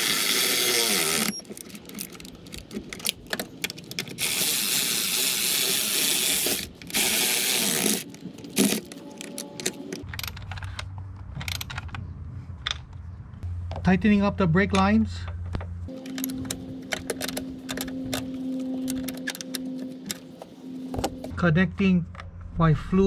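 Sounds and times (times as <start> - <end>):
electric ratchet running: 0.0 - 1.4, 4.2 - 8.8.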